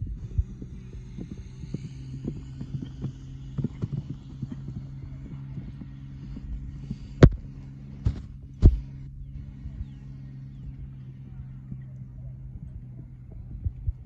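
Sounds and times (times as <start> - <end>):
horse hoofbeats on turf: 0.0 - 9.0
steady low hum: 0.0 - 14.0.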